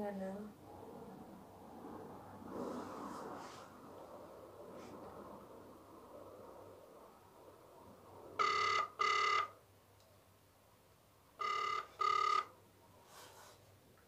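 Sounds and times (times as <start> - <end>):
phone ringback tone: 8.4 - 9.6, 11.4 - 12.6.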